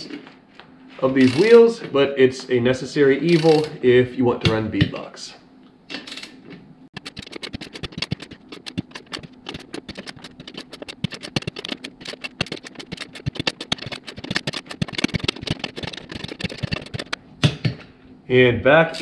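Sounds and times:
torque wrench clicking: 1.2 - 1.6, 3.3 - 3.8.

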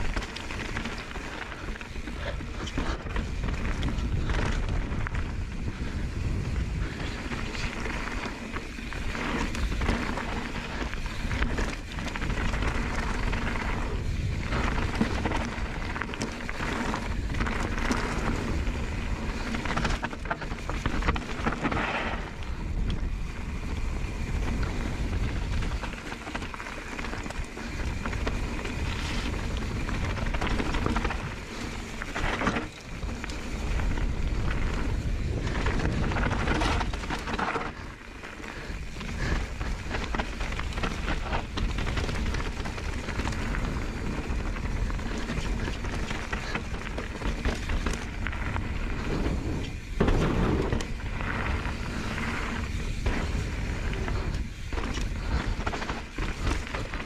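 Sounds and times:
bike rattling: 0.0 - 57.0
wind buffeting microphone: 0.0 - 57.0
tyres crunching over slate: 38.9 - 57.0.

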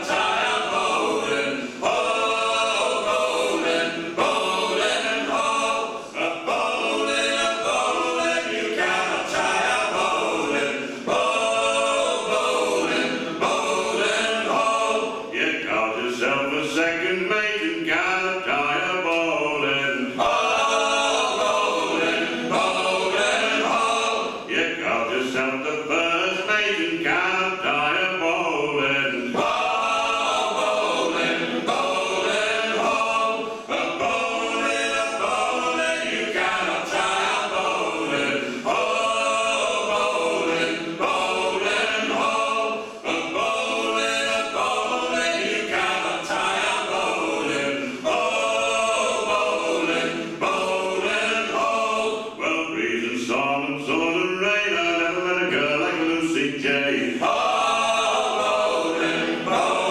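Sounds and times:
men singing in harmony: 0.0 - 59.9.

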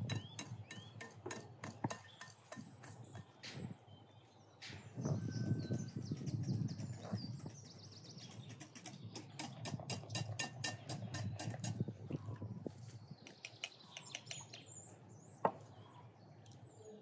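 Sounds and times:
whisk clinking in glass bowl: 0.0 - 3.3, 5.4 - 11.8
birds chirping: 0.0 - 17.0.

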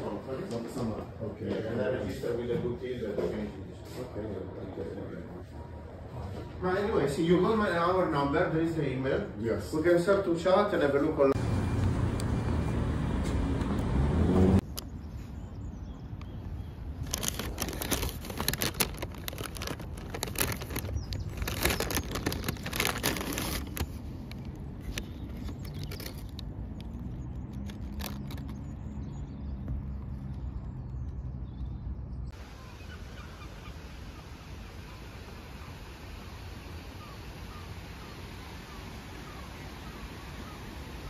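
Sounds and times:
street traffic rumble: 0.0 - 41.0
paper bag crinkling: 17.0 - 26.5, 27.5 - 28.6.

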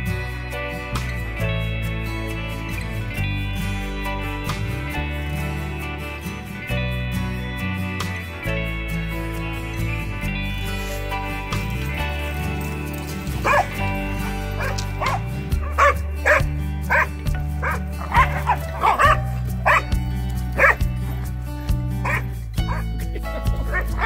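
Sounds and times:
background music: 0.0 - 24.0
dogs barking: 11.6 - 24.0.

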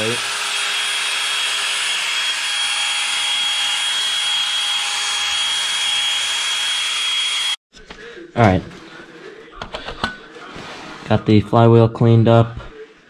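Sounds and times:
drill spinning wire brush on metal: 0.0 - 7.6.

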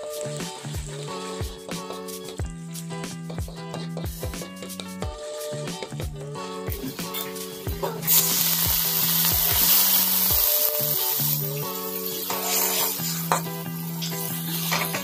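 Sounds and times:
water hissing in hot oil: 0.0 - 1.6, 6.8 - 15.0
oil sizzling in a wok: 0.0 - 2.4, 6.7 - 15.0
metal spatula stirring: 6.9 - 15.0.

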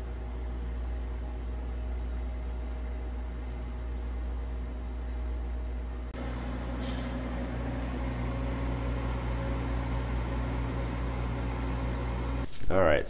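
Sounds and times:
fireplace blower fan humming: 0.0 - 12.9.

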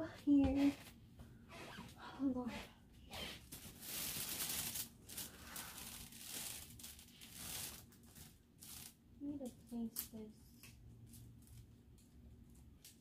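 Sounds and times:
fabric rustling: 2.5 - 9.0.

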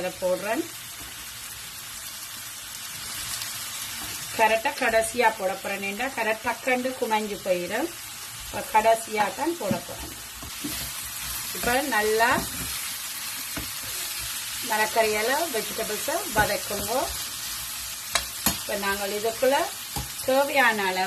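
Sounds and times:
vegetables sizzling in pan: 0.0 - 21.0
spatula scraping pan: 9.6 - 14.4
spatula tapping pan: 18.1 - 18.7.

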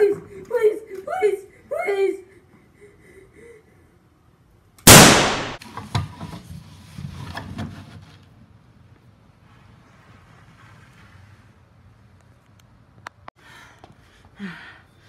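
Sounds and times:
loud bang: 4.9 - 5.6.

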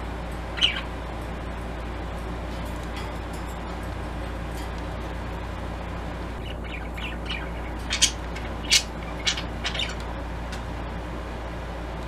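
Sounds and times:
steady low hum: 0.0 - 12.0
budgerigar chirping: 0.6 - 0.9, 6.4 - 10.0.

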